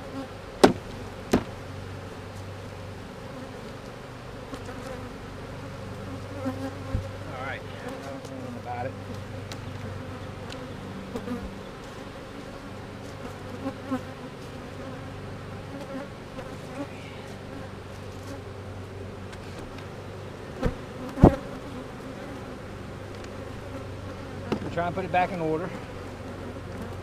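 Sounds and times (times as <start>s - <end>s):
honeybees humming: 0.0s - 27.0s
wooden hive box knocks: 0.6s - 1.6s.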